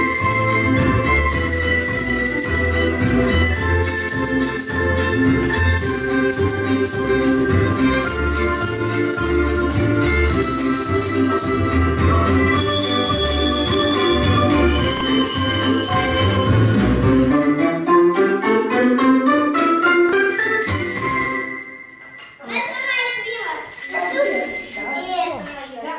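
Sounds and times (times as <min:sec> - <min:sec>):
handbells ringing: 0:00.0 - 0:17.8, 0:20.3 - 0:25.8.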